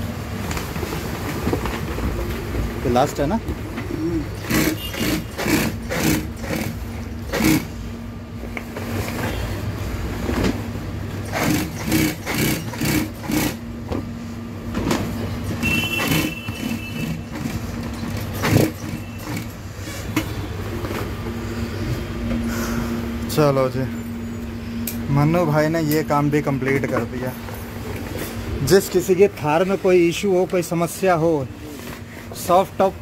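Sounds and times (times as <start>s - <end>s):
sewing machine motor humming: 4.2s - 7.7s, 11.2s - 13.6s, 15.6s - 19.6s.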